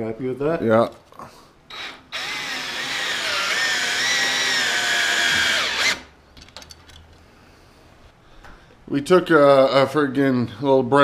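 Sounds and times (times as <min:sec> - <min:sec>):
cordless drill whining: 0:01.7 - 0:06.1.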